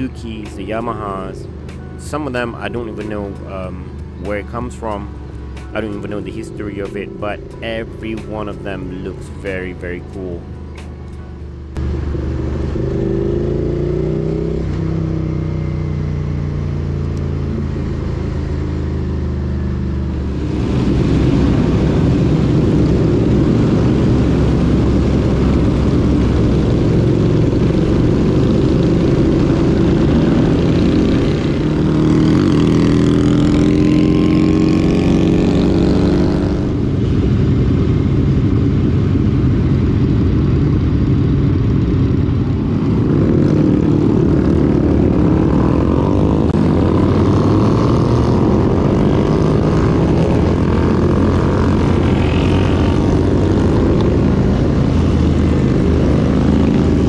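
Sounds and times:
motorcycle engine running: 0.0s - 57.0s
wind rush over microphone: 20.0s - 57.0s.

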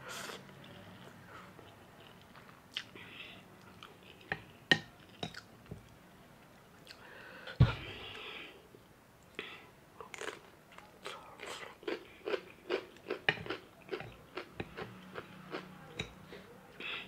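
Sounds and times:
low thump: 7.6s - 7.9s.

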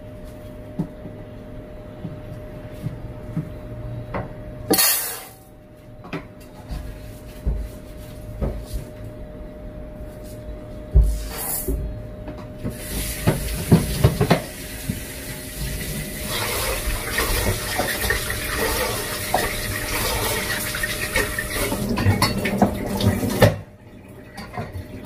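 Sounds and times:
tap water running into pot: 12.7s - 23.6s.

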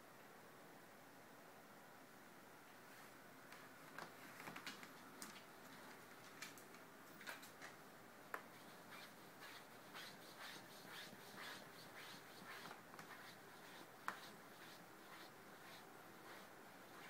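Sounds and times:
cat claws scratching fabric: 8.4s - 17.0s.

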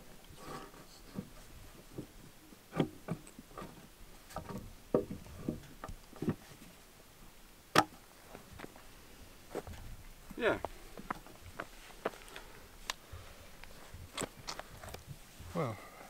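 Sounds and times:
wooden log knocks and clunks: 1.1s - 6.6s, 7.7s - 8.0s.

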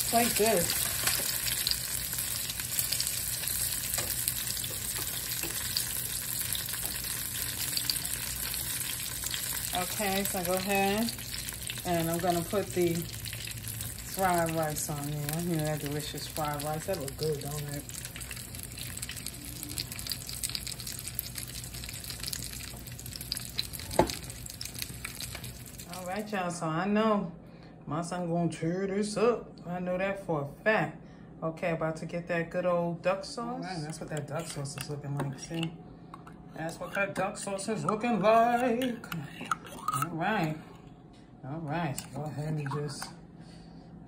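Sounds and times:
oil sizzling in a pan: 0.0s - 26.1s.

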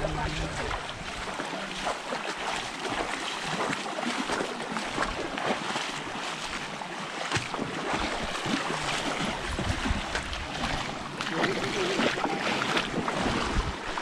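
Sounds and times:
flowing water rushing: 0.0s - 14.0s
wind buffeting microphone: 9.0s - 14.0s.

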